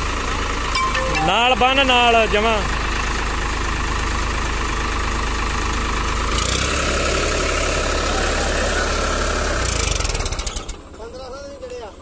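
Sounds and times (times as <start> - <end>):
tractor diesel engine running: 2.4 - 9.6.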